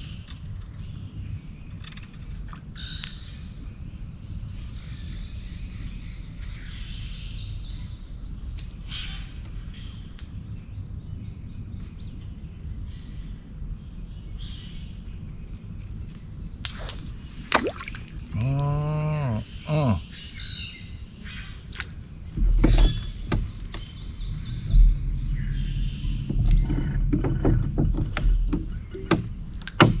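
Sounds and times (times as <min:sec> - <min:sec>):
person's drawn-out call: 0:18.4 - 0:20.0
low knocks: 0:22.3 - 0:30.0.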